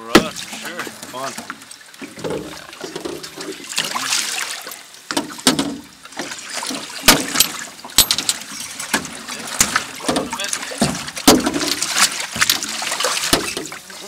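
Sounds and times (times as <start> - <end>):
water splashing and trickling: 0.0 - 14.0
sharp knocks: 5.1 - 5.8, 7.0 - 13.7.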